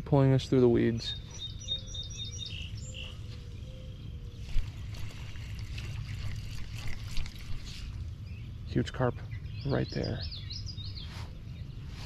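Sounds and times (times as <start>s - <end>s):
bird calling: 0.8s - 12.0s
water splashing around boat: 4.5s - 8.0s.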